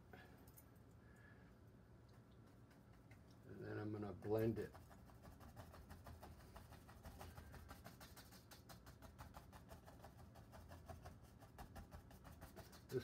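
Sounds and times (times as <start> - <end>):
faint low hum: 0.0 - 13.0
brush tapping on canvas: 2.4 - 13.0.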